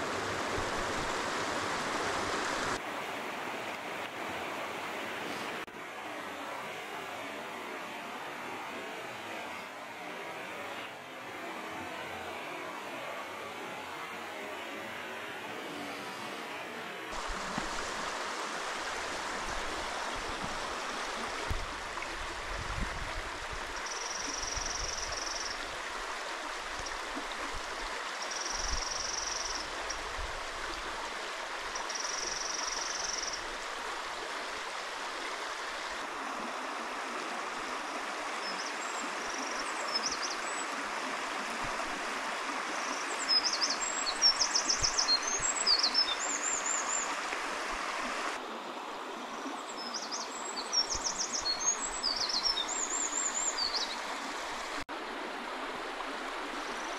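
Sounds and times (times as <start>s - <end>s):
stream rushing over rocks: 0.0s - 8.5s, 17.1s - 56.9s
wren song: 23.7s - 25.6s, 28.2s - 30.0s, 31.8s - 33.5s, 42.8s - 47.1s, 49.3s - 54.0s.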